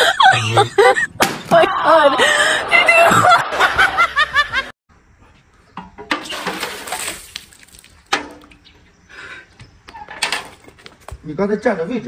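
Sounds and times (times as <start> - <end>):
water pouring: 6.2 - 8.1.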